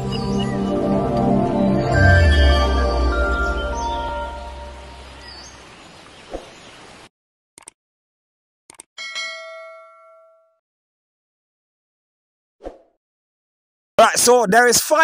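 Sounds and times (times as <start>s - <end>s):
logo sting music: 0.0s - 5.1s
bright bell ding: 9.0s - 10.6s.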